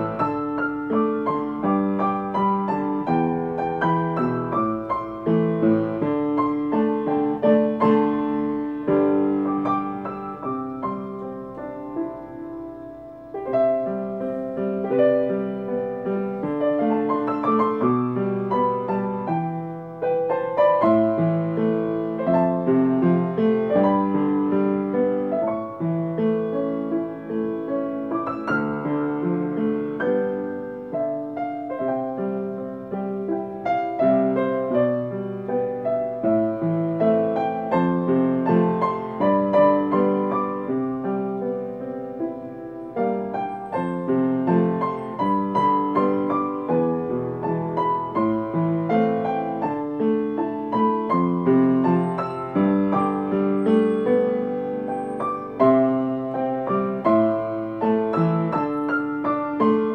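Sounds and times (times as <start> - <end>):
solo piano playing: 0.0 - 59.9.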